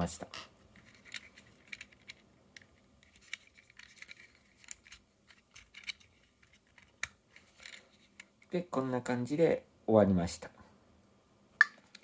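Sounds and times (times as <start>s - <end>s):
plastic and metal clicks and scrapes: 0.8s - 8.4s.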